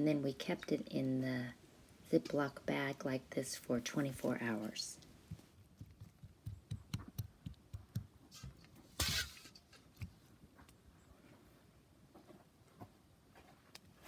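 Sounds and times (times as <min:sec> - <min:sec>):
soft taps and knocks: 0:05.3 - 0:08.7.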